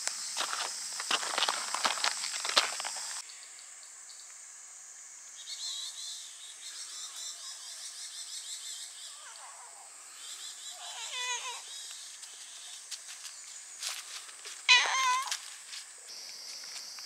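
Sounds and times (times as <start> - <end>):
cicadas droning: 0.0 - 17.0
animal calls with wavering pitch: 10.7 - 11.6, 14.7 - 15.3.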